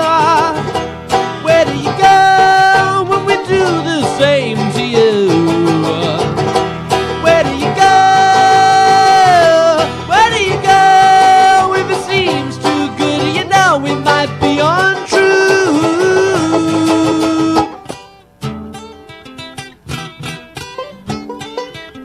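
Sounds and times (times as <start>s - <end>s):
acoustic guitar strumming: 0.0s - 22.0s
banjo picking: 0.0s - 22.0s
voices singing without words: 1.4s - 6.3s, 7.0s - 17.8s.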